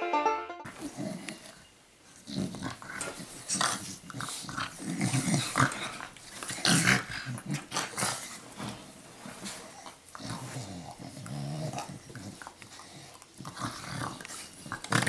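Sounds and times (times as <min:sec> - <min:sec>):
dogs growling: 0:00.7 - 0:15.0
bedding rustling: 0:07.5 - 0:10.8.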